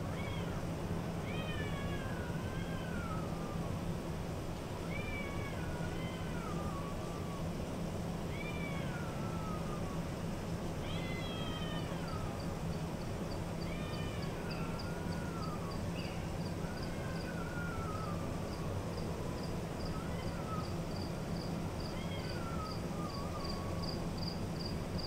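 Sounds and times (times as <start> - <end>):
ventilation hum: 0.0 - 25.0
cat meowing loudly: 10.8 - 12.4, 19.9 - 20.8, 21.9 - 23.9.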